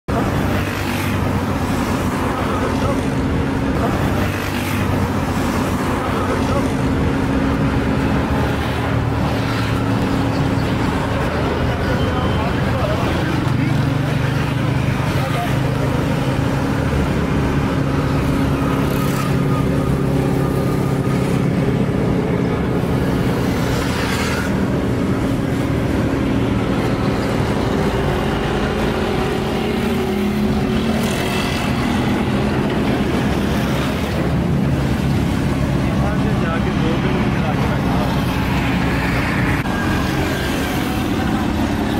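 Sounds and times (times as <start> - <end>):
vehicles passing by: 0.1 - 41.9.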